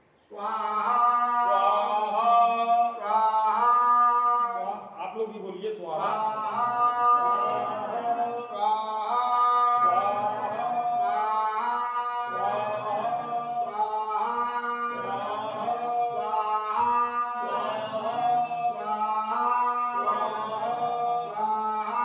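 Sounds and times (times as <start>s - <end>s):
man chanting a sung mantra: 0.3s - 12.6s.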